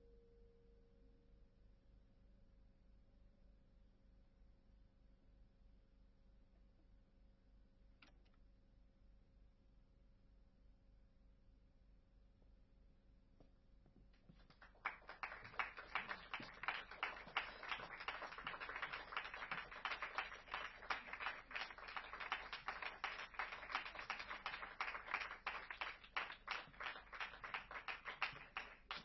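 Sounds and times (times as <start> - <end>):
small crowd clapping: 14.2 - 29.0.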